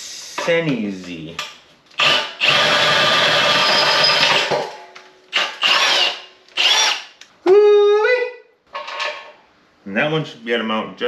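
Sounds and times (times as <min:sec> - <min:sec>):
cordless drill boring into steel: 0:02.0 - 0:04.3, 0:05.4 - 0:07.1
drill bit squealing on steel: 0:03.5 - 0:04.3.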